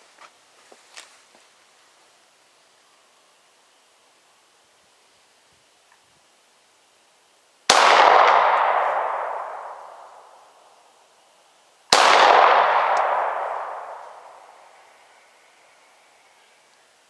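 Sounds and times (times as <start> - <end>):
handgun shots with echo: 7.7 - 9.8, 11.9 - 14.3.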